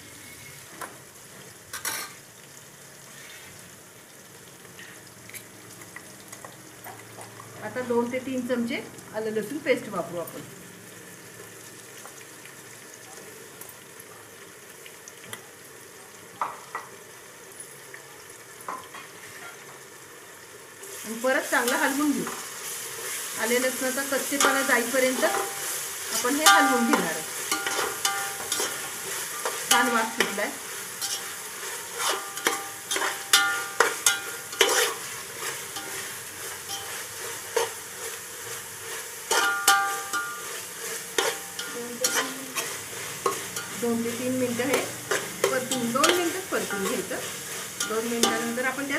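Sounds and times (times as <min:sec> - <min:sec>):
onions sizzling in hot oil: 0:00.0 - 0:48.9
spoon knocking ringing pot: 0:26.4 - 0:28.5, 0:32.4 - 0:34.3, 0:39.4 - 0:40.4
spoon scraping pot: 0:26.4 - 0:30.4, 0:31.0 - 0:36.0, 0:39.3 - 0:43.8.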